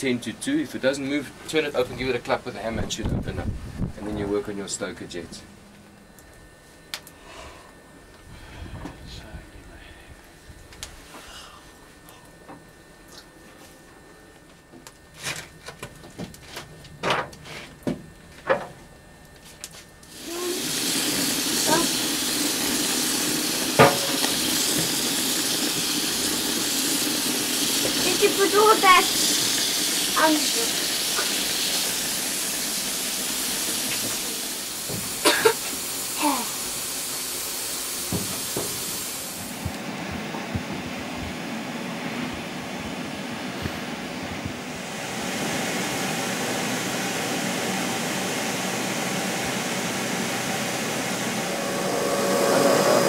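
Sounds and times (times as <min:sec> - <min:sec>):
steam hissing: 0:20.1 - 0:40.0, 0:44.7 - 0:53.0
brief falling tone: 0:51.3 - 0:53.0.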